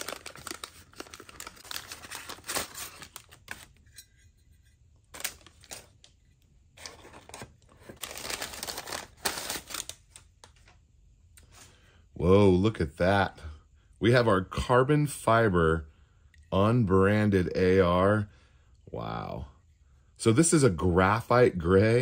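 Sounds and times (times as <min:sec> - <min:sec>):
paper crinkling and tearing: 0:00.0 - 0:03.8, 0:05.1 - 0:06.0, 0:06.8 - 0:10.7.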